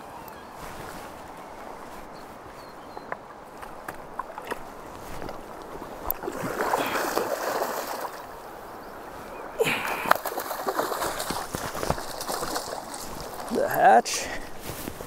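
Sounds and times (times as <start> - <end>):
fish splashing in water: 6.1 - 8.3, 9.6 - 13.5.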